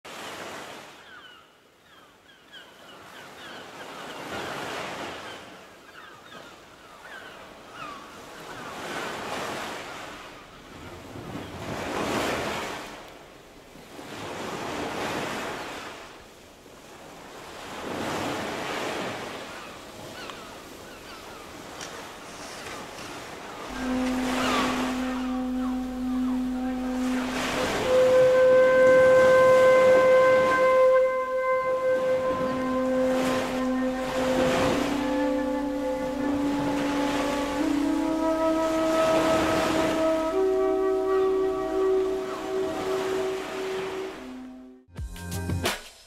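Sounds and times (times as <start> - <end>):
ocean waves washing in: 8.5 - 44.8.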